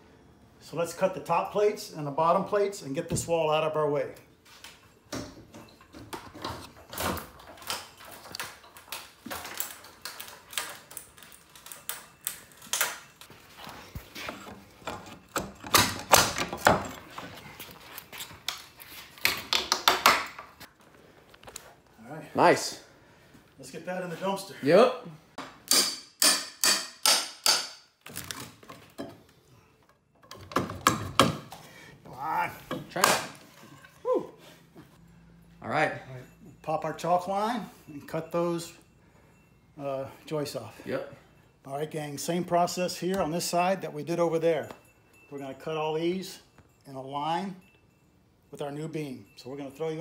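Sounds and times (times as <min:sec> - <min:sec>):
hammer striking steel pry bar: 0:25.6 - 0:27.9
wooden studs knocking and clattering: 0:30.2 - 0:31.6.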